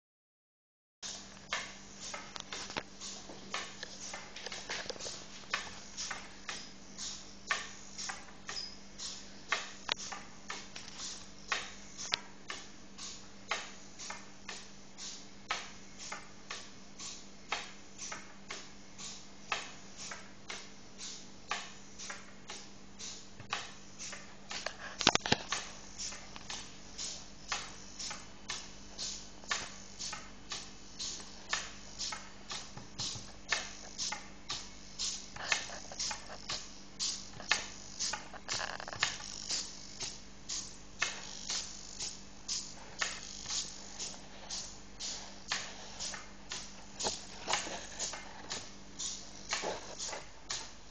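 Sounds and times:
faint steady hum: 1.0s - 50.9s
robot servos clicking: 23.0s - 50.7s.

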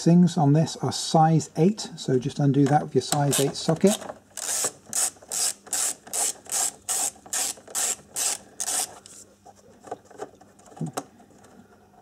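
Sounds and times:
ratchet wrench ratcheting: 4.4s - 8.9s.

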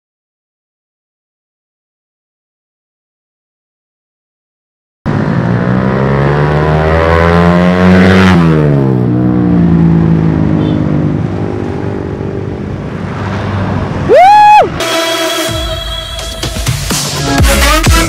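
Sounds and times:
motorcycle riding past: 5.1s - 14.1s.

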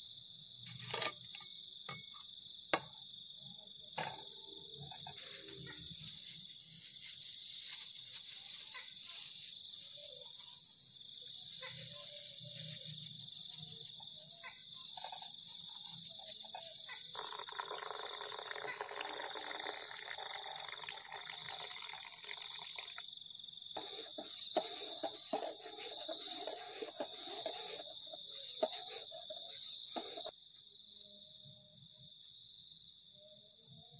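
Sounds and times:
crickets and insects chirping: 0.0s - 33.9s
liquid pouring into metal mug: 17.1s - 23.1s.

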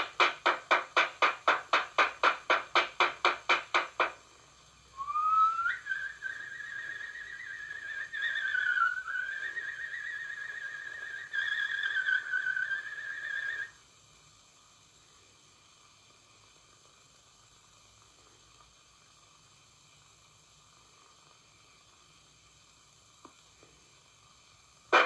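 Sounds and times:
quick evenly spaced strikes: 0.0s - 4.2s
high whistling tone: 4.9s - 13.8s.

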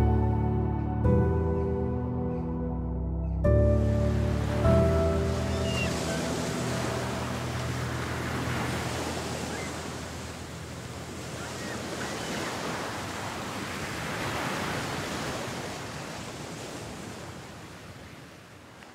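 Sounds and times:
background music: 0.0s - 10.6s
sea waves washing in: 3.7s - 18.9s.

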